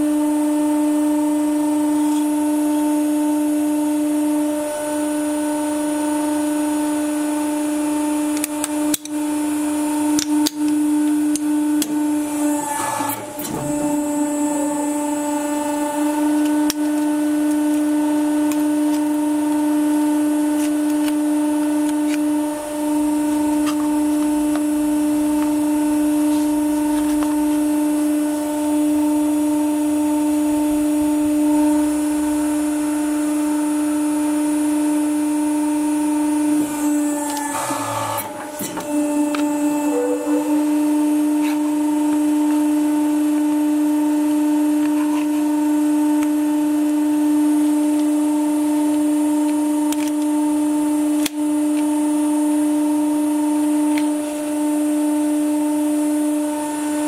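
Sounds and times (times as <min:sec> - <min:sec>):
hydraulic pump humming: 0:08.4 - 0:47.9.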